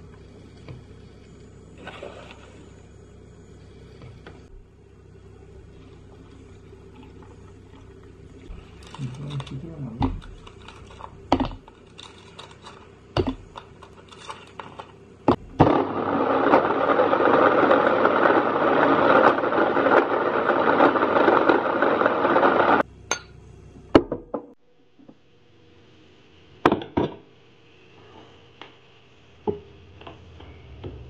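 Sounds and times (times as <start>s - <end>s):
electric blender running: 5.3s - 22.9s.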